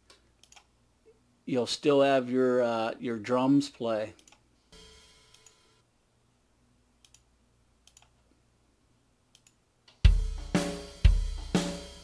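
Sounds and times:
mouse clicks: 0.1s - 0.7s, 7.0s - 8.2s
kick and snare drum hits: 10.1s - 12.0s.

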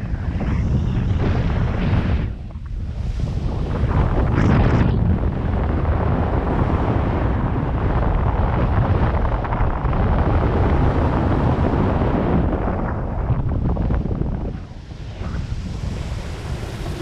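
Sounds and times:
wind buffeting microphone: 0.0s - 17.0s
water rushing under board: 9.2s - 17.0s.

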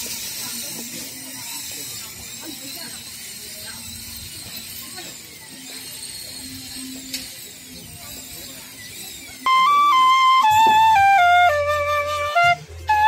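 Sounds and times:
bamboo flute melody: 4.0s - 13.0s.

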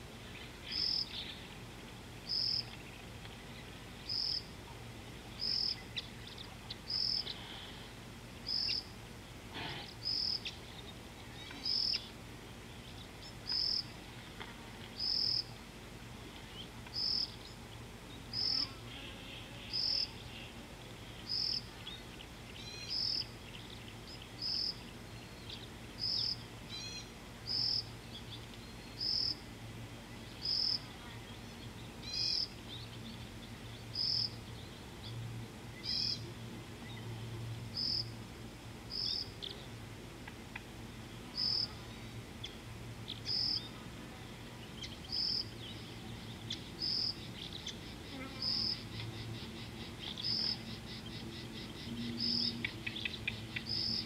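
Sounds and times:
faint insects: 0.0s - 54.0s
low steady hum: 0.0s - 54.0s
bird chirps: 8.4s - 8.9s, 10.0s - 12.1s, 42.4s - 43.7s, 44.6s - 54.0s.

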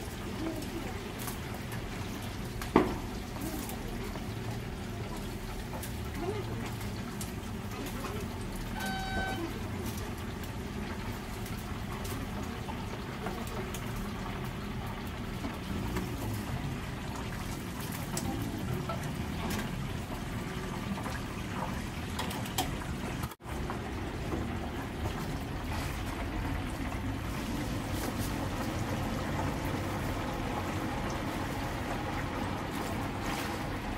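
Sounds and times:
oil sizzling and bubbling: 0.0s - 33.9s
short electronic beep: 8.8s - 9.5s.

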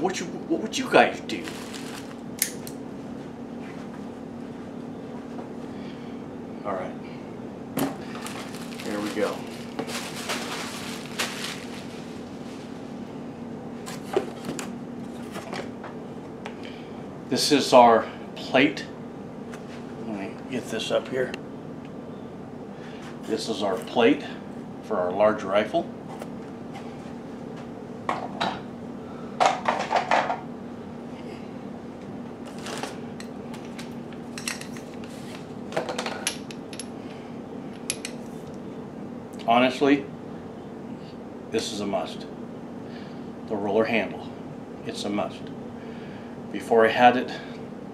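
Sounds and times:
faint hum: 0.0s - 47.9s
plastic and cardboard rustling: 1.3s - 2.2s, 8.0s - 12.8s.

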